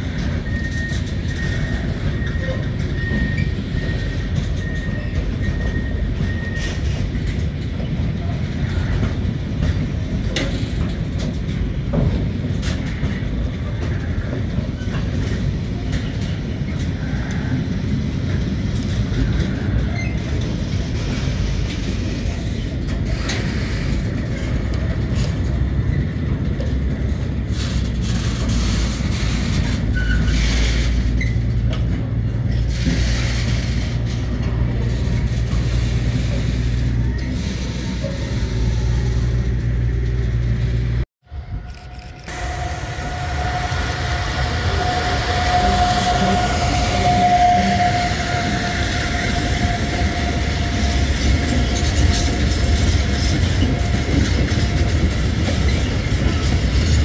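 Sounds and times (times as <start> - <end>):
freight train rumbling past: 0.0 - 57.0
train wheel clicks and knocks: 0.1 - 16.9.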